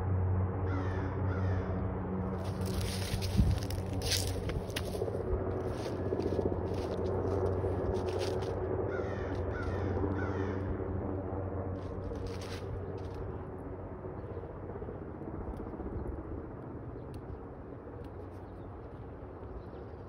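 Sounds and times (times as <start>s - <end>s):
helicopter drone overhead: 0.0s - 20.0s
crow cawing: 0.7s - 1.8s, 5.7s - 7.0s, 8.9s - 10.8s
dry leaves rustling: 2.3s - 8.6s, 11.8s - 13.2s.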